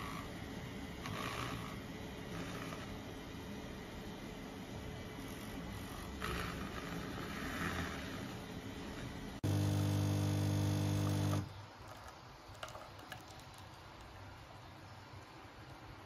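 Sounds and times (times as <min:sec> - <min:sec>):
milk frother whirring: 0:00.0 - 0:13.7
espresso machine pump buzzing: 0:05.3 - 0:11.6.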